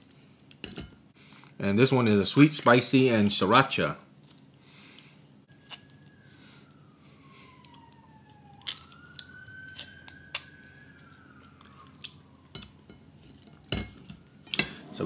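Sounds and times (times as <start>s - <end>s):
faint siren wailing: 5.4s - 15.0s.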